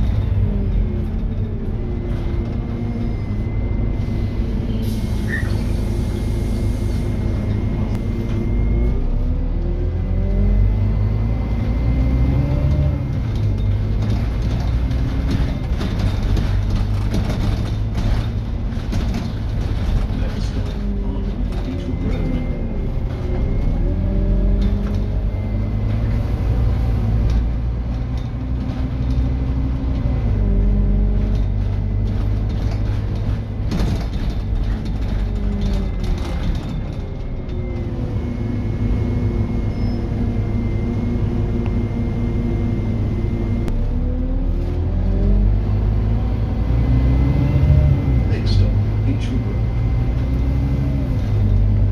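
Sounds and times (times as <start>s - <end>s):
diesel bus engine revving: 0.0s - 51.9s
bodywork rattles: 13.4s - 21.7s, 31.4s - 37.2s.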